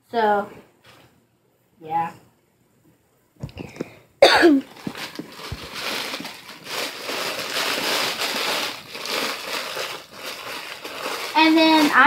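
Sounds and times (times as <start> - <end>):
person coughing: 3.6 - 4.7
plastic bag crinkling: 4.6 - 12.0.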